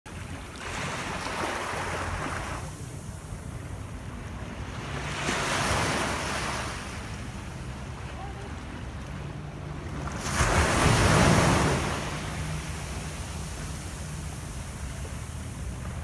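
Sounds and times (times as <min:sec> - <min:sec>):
wind rumbling on microphone: 0:00.1 - 0:16.0
surf washing over sand: 0:00.2 - 0:16.0.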